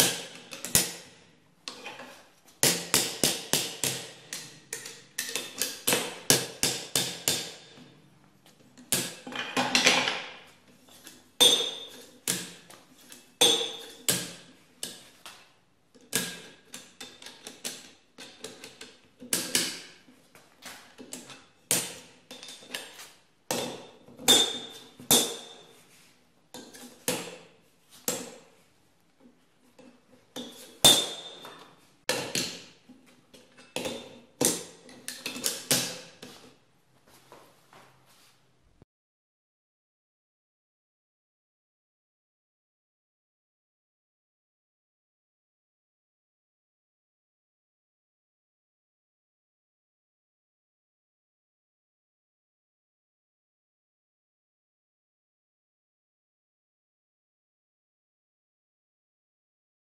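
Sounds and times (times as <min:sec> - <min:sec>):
hammer striking steel on anvil: 0:30.8 - 0:31.5.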